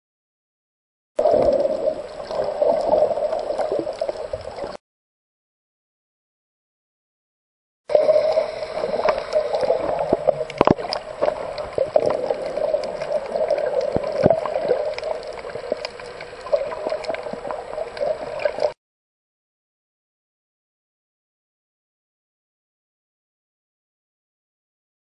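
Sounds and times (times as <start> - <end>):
gurgling water: 1.2 - 4.8, 7.9 - 18.8
underwater hum: 1.2 - 4.8, 7.9 - 18.8.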